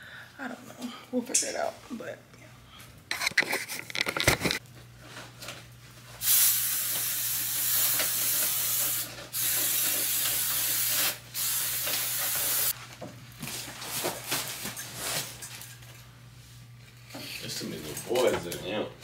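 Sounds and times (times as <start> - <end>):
aerosol spray can hissing: 6.2 - 12.7.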